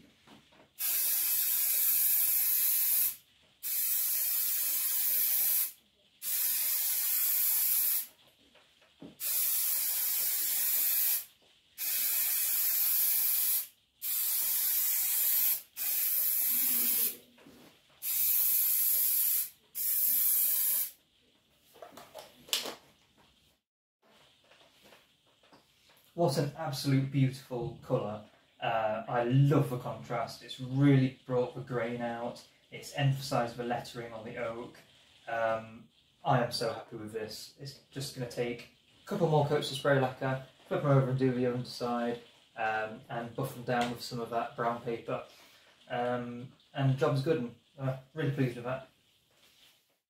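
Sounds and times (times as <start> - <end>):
aerosol can spraying: 0.8 - 8.1, 9.2 - 17.2, 18.0 - 21.0.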